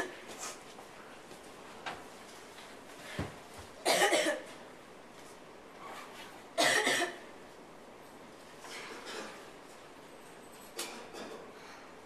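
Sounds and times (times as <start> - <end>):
person coughing: 3.8 - 4.5, 6.6 - 7.2.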